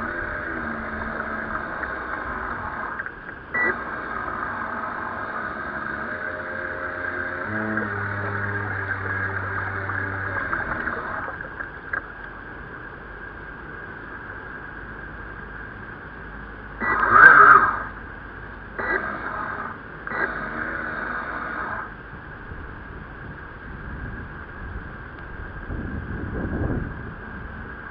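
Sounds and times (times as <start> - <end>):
water sloshing along hull: 0.0 - 12.2.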